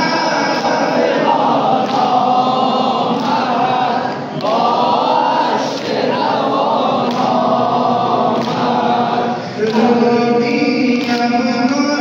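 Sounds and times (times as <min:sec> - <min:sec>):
men chanting lament: 0:00.0 - 0:12.0.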